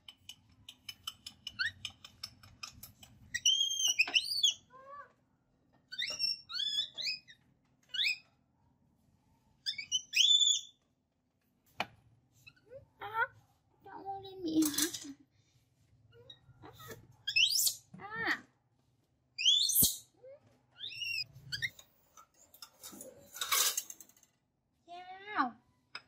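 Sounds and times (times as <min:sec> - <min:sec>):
baby monkey squeaking: 0:03.3 - 0:04.6, 0:05.9 - 0:08.2, 0:09.7 - 0:10.7, 0:16.2 - 0:17.9, 0:19.4 - 0:20.1, 0:20.8 - 0:21.8.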